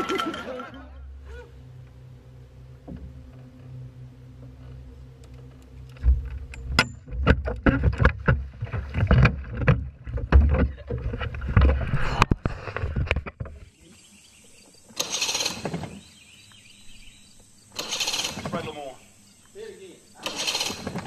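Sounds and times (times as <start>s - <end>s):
low steady hum: 0.0s - 14.9s
knocks and thumps against boat: 2.8s - 4.6s, 6.0s - 13.7s.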